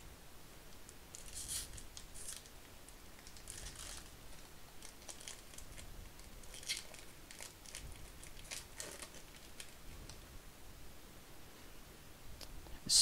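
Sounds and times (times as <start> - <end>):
card pack wrapper tearing: 1.1 - 2.5, 3.2 - 9.8.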